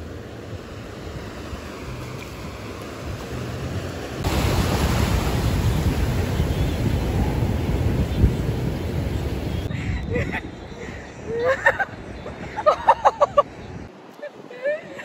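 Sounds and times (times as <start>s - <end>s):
small waves washing on sand: 0.0s - 9.7s
wind on microphone: 4.2s - 15.0s.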